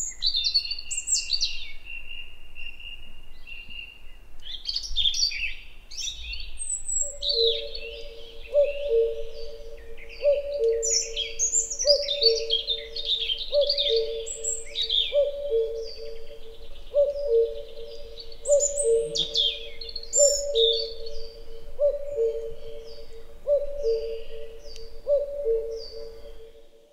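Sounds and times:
robin singing: 0.0s - 26.9s
cuckoo calling: 6.9s - 26.9s.

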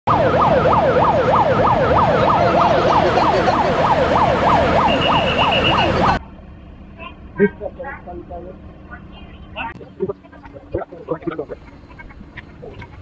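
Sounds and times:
electronic siren wailing: 0.1s - 6.2s
steady high beep: 4.8s - 6.2s.

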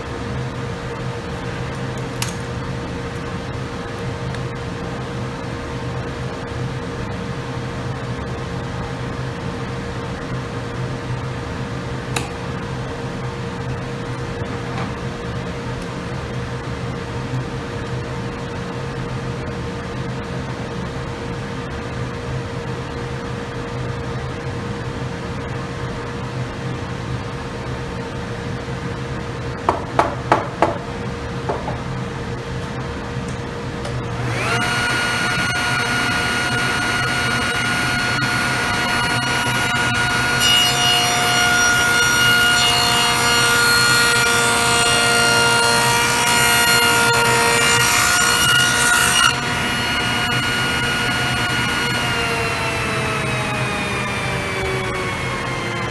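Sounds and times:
steady background hum: 0.0s - 55.9s
table saw motor running: 34.1s - 55.9s
saw blade cutting wood: 34.2s - 55.9s.

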